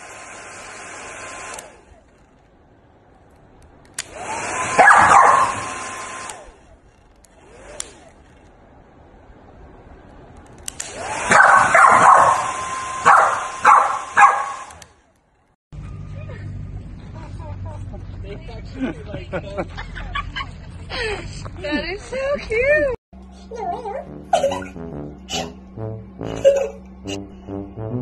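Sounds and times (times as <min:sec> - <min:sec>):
machine hissing whir: 0:00.0 - 0:02.0
dog barking and howling: 0:04.8 - 0:05.7, 0:11.3 - 0:14.7.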